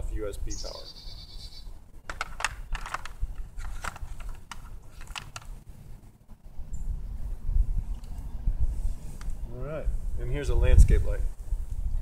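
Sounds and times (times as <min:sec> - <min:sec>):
wires and plugs clicking: 0:02.0 - 0:05.5.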